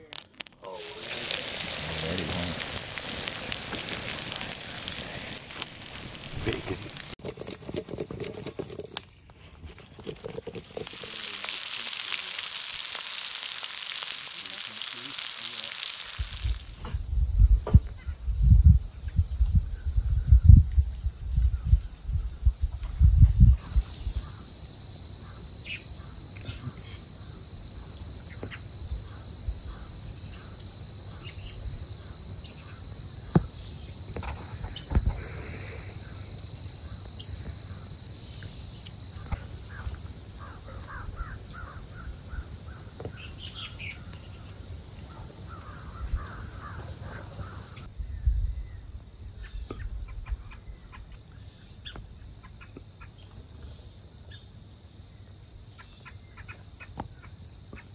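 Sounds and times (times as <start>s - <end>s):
birds chirping: 0.7s - 7.2s.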